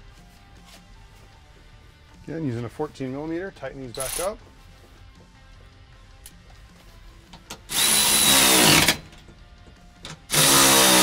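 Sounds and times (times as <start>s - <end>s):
electric ratchet tightening bolts: 3.9s - 4.3s, 7.4s - 9.3s, 10.0s - 11.0s.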